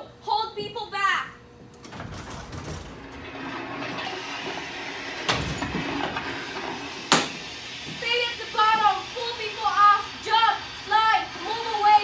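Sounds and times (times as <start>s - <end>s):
sharp knocks: 7.1s - 7.4s.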